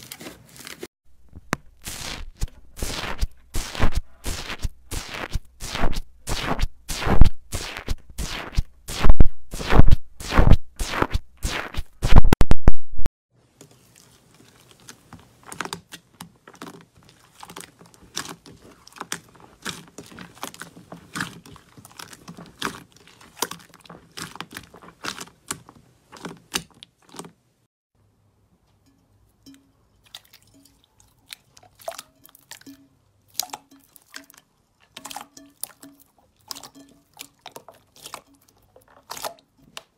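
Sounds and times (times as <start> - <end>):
slime kneaded crackling: 1.5 - 11.8, 13.9 - 27.2
foam slime crackling and popping: 1.8 - 11.9
slime squelching and clicking: 14.6 - 27.3.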